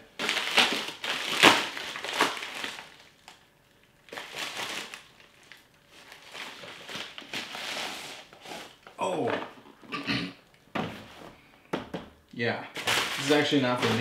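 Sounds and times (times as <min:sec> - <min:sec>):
packaging crinkling and crumpling: 0:00.1 - 0:09.0, 0:12.8 - 0:14.0.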